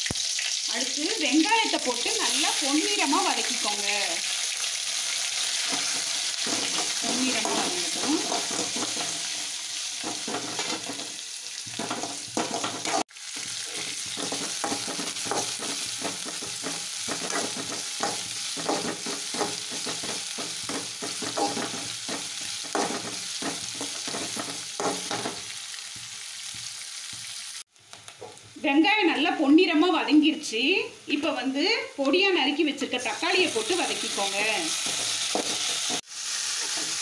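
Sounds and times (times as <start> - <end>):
onions sizzling in hot oil: 0.0 - 37.0
metal spatula scraping a pan: 5.5 - 25.6, 33.2 - 36.0.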